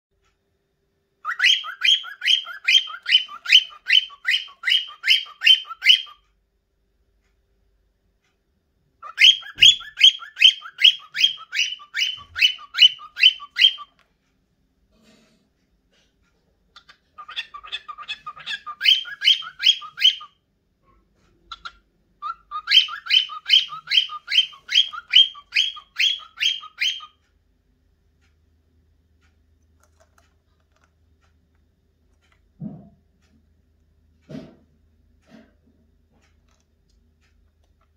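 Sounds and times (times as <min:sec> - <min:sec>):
cockatiel whistling: 0:01.2 - 0:06.2, 0:09.0 - 0:14.0, 0:16.8 - 0:20.4, 0:21.5 - 0:27.2.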